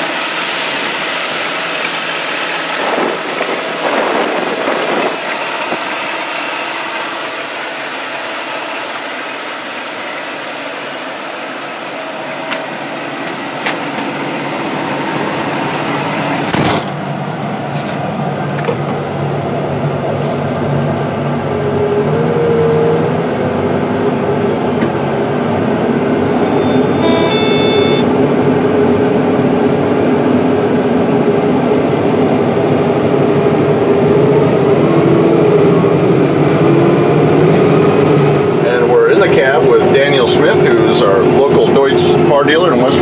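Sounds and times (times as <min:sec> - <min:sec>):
tractor diesel engine running: 0:00.0 - 0:43.0.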